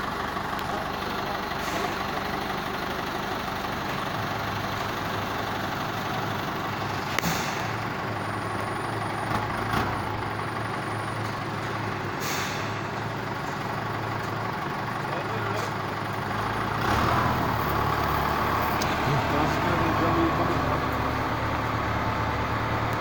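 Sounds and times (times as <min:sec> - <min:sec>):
engine humming and hissing: 0:00.0 - 0:23.0.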